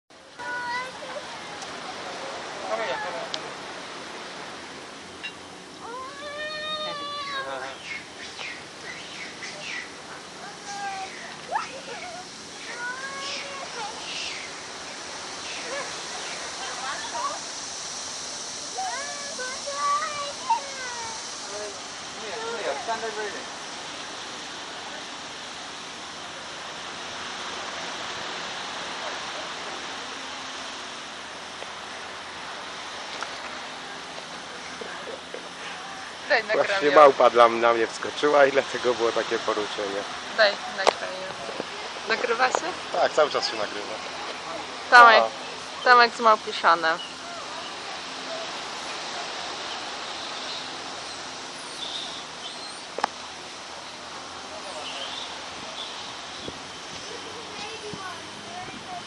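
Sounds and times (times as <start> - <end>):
surf on a beach: 0.1 - 59.0
faint high bird chirps: 10.7 - 14.5, 49.7 - 52.9.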